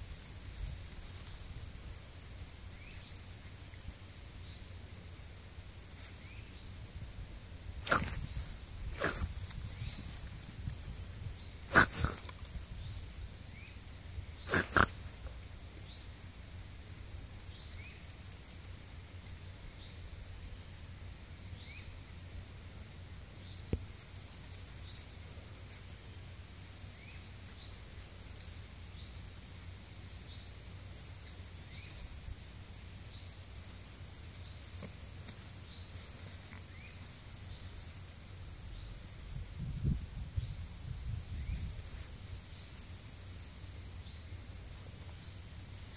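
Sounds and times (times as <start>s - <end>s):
high insect drone: 0.0s - 45.9s
raccoons snorting: 7.8s - 10.5s, 11.6s - 12.8s, 14.4s - 15.4s.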